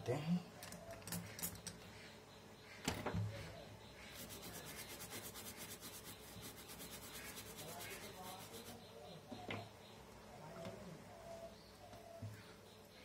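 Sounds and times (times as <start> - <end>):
small brush scrubbing: 4.0 - 8.8.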